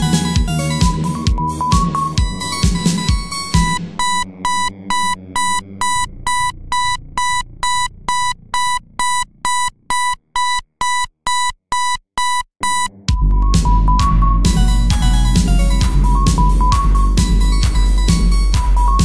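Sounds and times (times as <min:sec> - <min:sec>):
high electronic beeps: 0:00.0 - 0:19.0
low sustained synth: 0:13.2 - 0:19.0.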